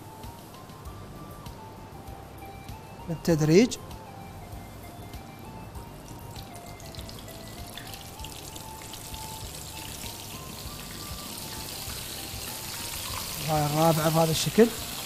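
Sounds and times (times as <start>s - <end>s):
soft background music: 0.0s - 15.0s
fish frying in hot oil: 6.1s - 15.0s.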